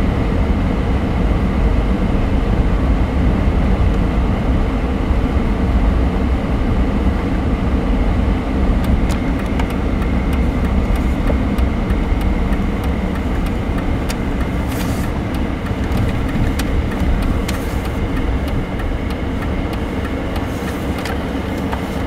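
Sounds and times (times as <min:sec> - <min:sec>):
car engine and road noise: 0:00.0 - 0:22.0
turn signal ticking: 0:08.8 - 0:22.0.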